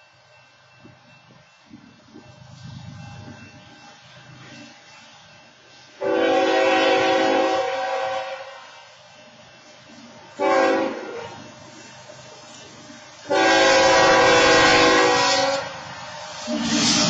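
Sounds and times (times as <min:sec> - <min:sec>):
locomotive air horn blasts: 0:06.0 - 0:08.9, 0:10.4 - 0:11.4, 0:13.2 - 0:15.8.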